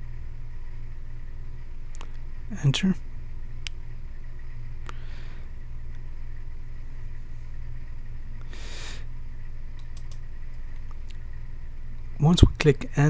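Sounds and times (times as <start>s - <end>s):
industrial machinery hum: 0.0s - 13.0s
faint click: 1.9s - 2.2s.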